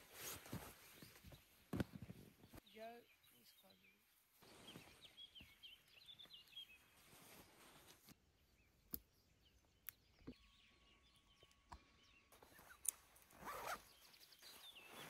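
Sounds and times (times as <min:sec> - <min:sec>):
zipper rasp: 0:12.4 - 0:13.8.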